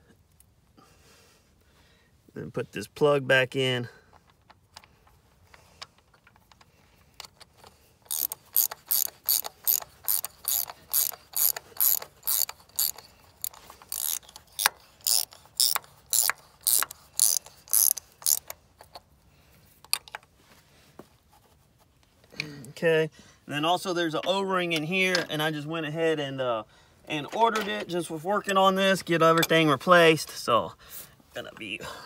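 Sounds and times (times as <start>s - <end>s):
ratchet wrench clicking: 6.2s - 19.0s.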